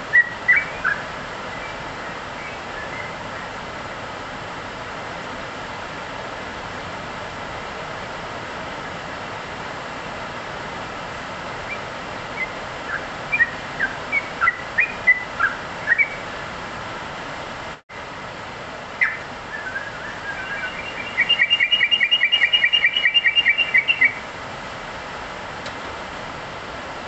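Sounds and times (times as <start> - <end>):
steady hiss: 0.0 - 27.0
bird singing chirps: 0.1 - 1.8, 11.7 - 16.2, 19.0 - 24.2.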